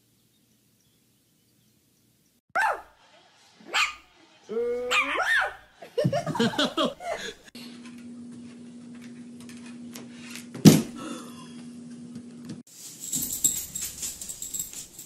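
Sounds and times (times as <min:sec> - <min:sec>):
excited voices: 0:02.6 - 0:07.5.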